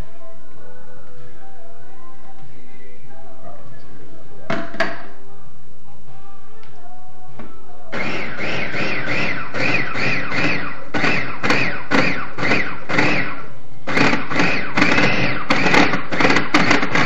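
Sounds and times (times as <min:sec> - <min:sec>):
electric food chopper whirring: 0:08.0 - 0:17.0.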